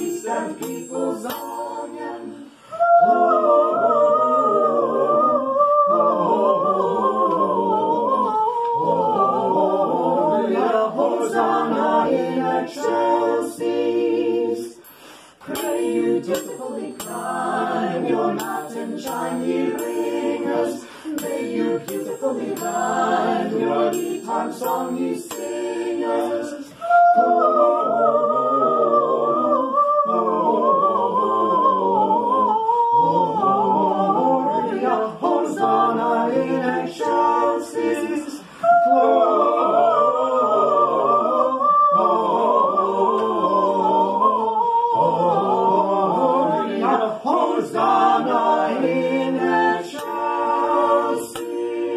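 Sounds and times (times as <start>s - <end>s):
triangle ringing: 0.0s - 2.4s, 15.6s - 26.0s
choir singing a cappella: 0.0s - 51.9s.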